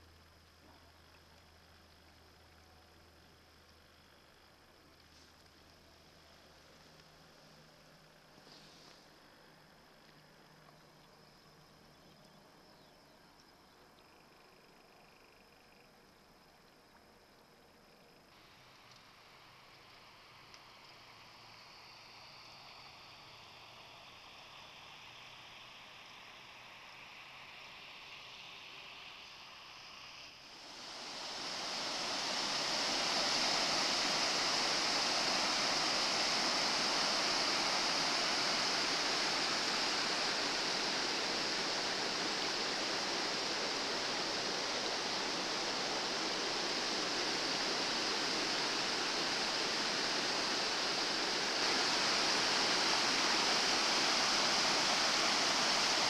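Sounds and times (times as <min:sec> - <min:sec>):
floodwater rushing: 0:30.4 - 0:56.0.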